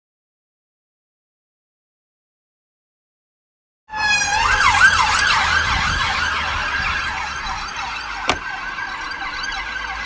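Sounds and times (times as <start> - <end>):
police siren yelping: 3.9 - 10.0.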